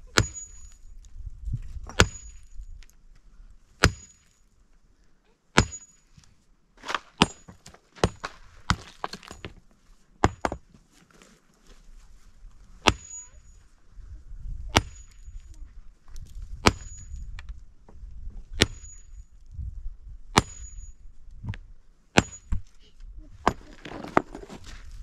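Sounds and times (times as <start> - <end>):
sledgehammer cracking rocks: 0.1 - 0.8, 1.8 - 2.6, 3.8 - 4.4, 5.6 - 6.0, 6.8 - 9.6, 10.2 - 10.7, 12.8 - 13.2, 14.7 - 15.4, 16.5 - 17.2, 18.6 - 19.2, 20.3 - 20.9, 22.2 - 22.7
stones knocking: 6.8 - 9.6, 23.5 - 24.9.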